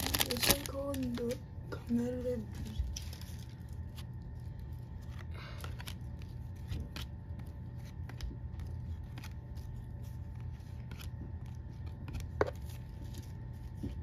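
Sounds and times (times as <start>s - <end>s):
steady low hum: 0.0s - 14.0s
cards clicking and rustling: 4.8s - 14.0s.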